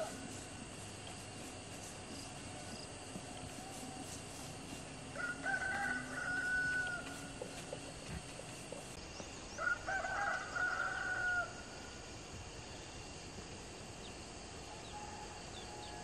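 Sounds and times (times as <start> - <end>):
rooster crowing: 5.1 - 7.6, 9.6 - 11.7, 14.8 - 16.0.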